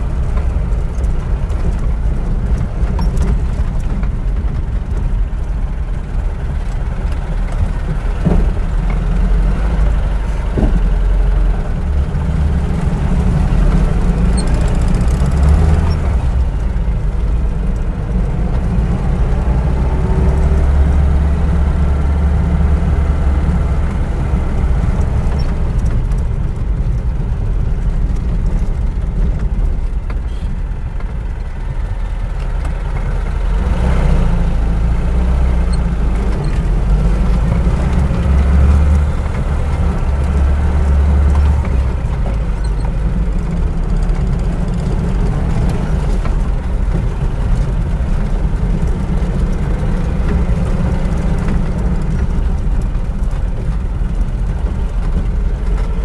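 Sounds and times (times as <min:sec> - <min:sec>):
car engine idling: 0:34.4 - 0:56.0.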